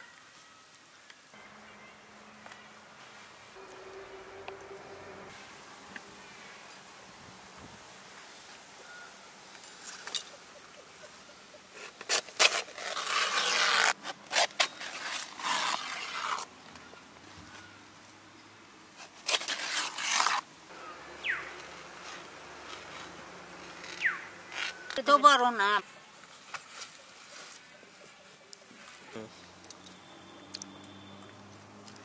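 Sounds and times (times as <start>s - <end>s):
banana leaves rustling and tearing: 11.8s - 16.5s, 18.9s - 25.2s.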